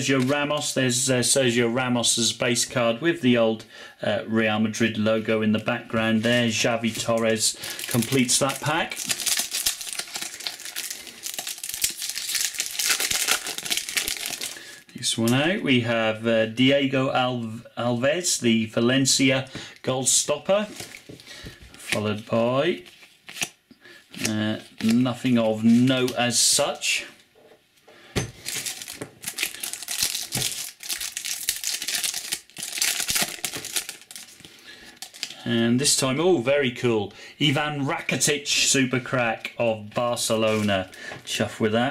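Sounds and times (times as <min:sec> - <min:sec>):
foil wrapper crinkling: 0:06.8 - 0:14.6, 0:28.4 - 0:35.4.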